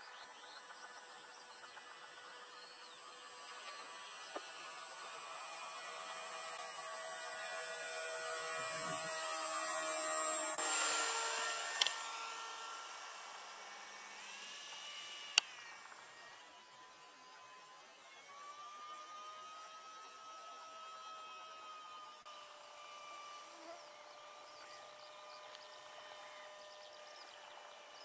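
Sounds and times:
model plane motor whining: 0.0 - 28.0
sharp clicks: 15.3 - 15.6.

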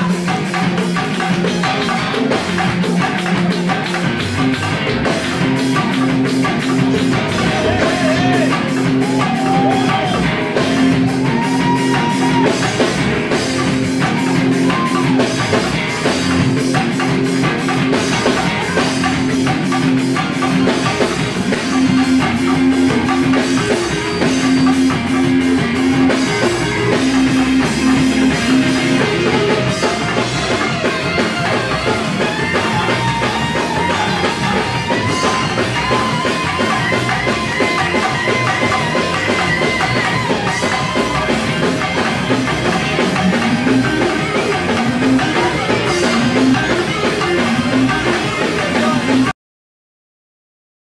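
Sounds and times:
live band playing: 0.0 - 49.3.

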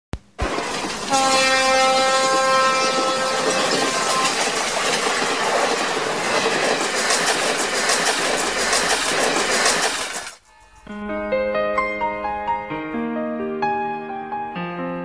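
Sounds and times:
wheels clacking over rail joints: 0.4 - 10.4
train rumbling along: 0.4 - 11.0
train horn: 1.0 - 4.5.

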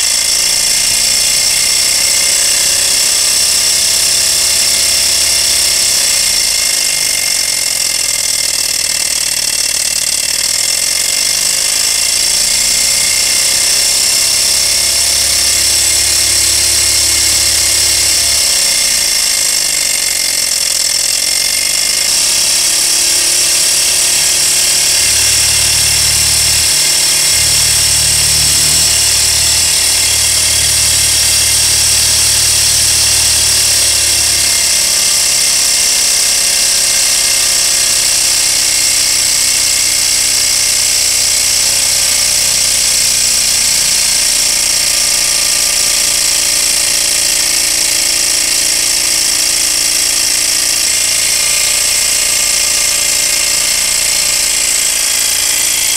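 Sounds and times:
engine high mechanical whirr: 0.0 - 55.9
low hum: 12.5 - 19.4, 23.0 - 35.2.

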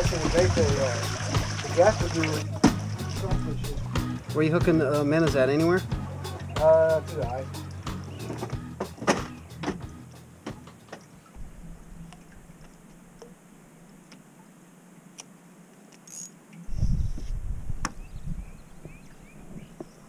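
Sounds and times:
low rumble: 11.4 - 13.2.

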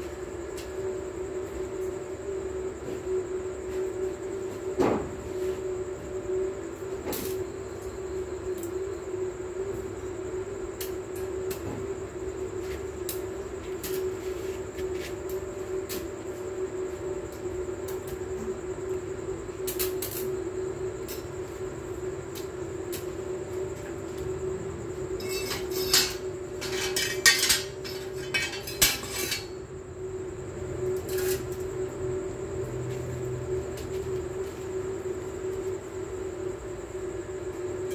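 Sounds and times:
electric arc welding hum: 5.4 - 37.9
welding crackles and clicks: 7.1 - 7.4, 12.7 - 16.2, 19.6 - 20.4, 21.0 - 21.5, 22.3 - 29.6, 30.9 - 31.9.

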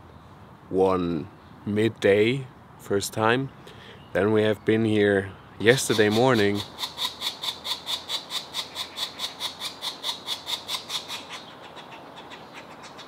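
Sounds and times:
nestlings begging chatter: 5.6 - 13.0.

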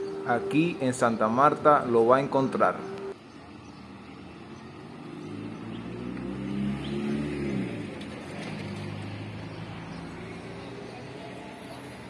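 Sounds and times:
street background: 0.0 - 12.0
vehicle engine passing by: 3.6 - 12.0.

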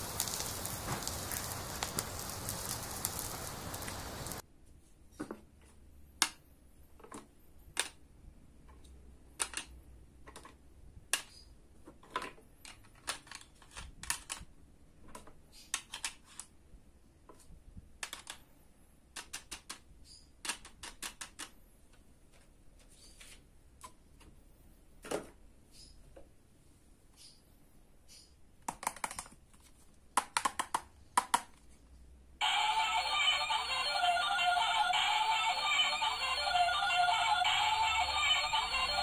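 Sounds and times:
plastic toys clicking and clattering: 8.7 - 16.6, 18.0 - 18.5, 19.1 - 21.6, 28.6 - 31.6.

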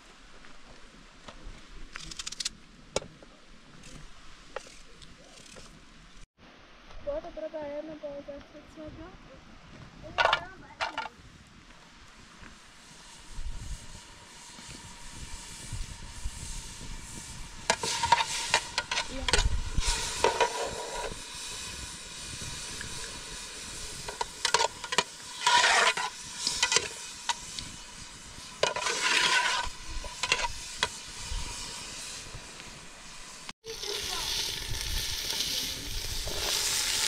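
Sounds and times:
steady low hiss: 0.0 - 37.0
scraping noise: 24.0 - 32.3.

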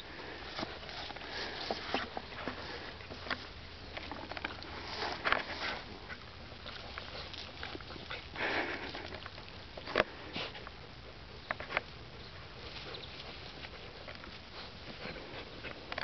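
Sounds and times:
puppies sniffing: 0.0 - 10.8, 11.5 - 16.0
puppies digging in soil: 0.0 - 16.0.

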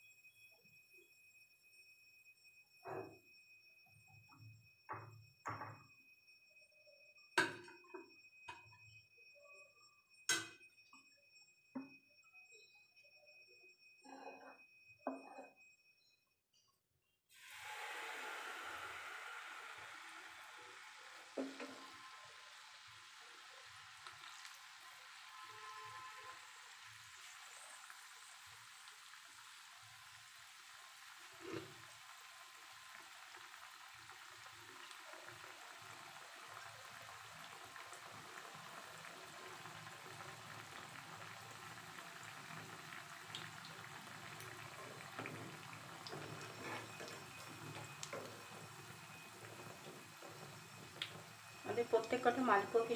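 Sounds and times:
batter sizzling in hot oil: 17.3 - 52.9.

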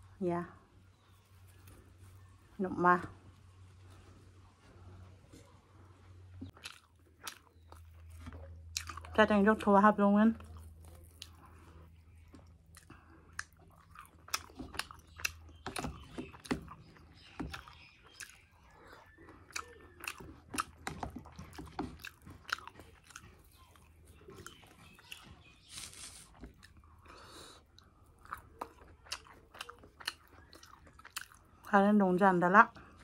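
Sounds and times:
person chewing food: 5.2 - 9.7, 10.3 - 33.0.

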